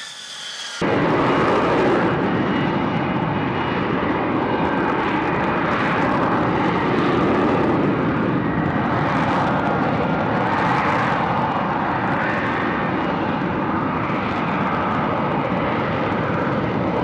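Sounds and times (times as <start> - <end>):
jet engine roar: 0.0 - 17.0.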